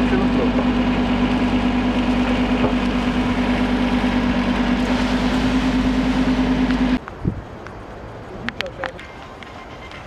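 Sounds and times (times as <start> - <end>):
tractor engine running: 0.0 - 7.0.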